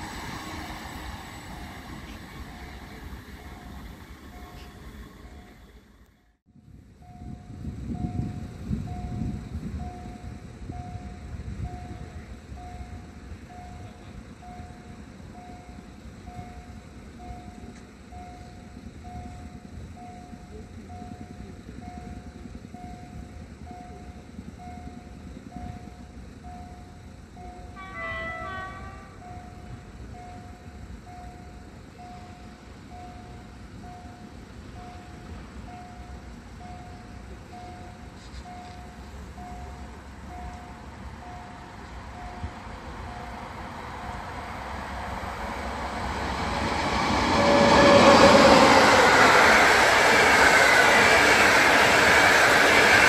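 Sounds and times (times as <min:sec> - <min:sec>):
level crossing warning beeps: 0:00.2 - 0:05.8, 0:07.0 - 0:44.2
low rumble: 0:43.7 - 0:52.8.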